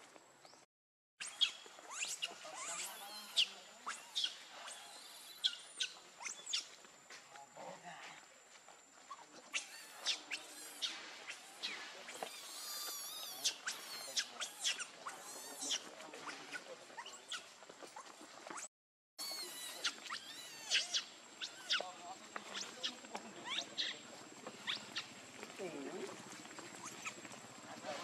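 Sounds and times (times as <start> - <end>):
baby monkey squeaking: 1.2 - 6.8, 9.1 - 25.2, 26.7 - 27.2.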